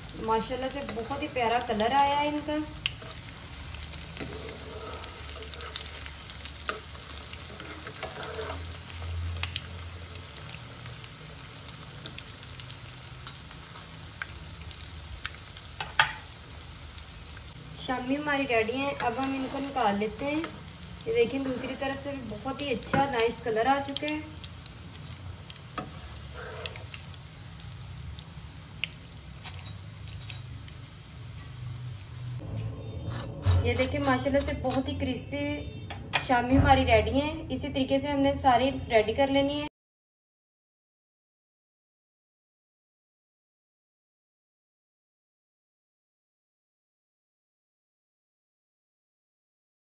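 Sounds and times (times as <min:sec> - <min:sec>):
food sizzling in hot oil: 0:00.0 - 0:35.0.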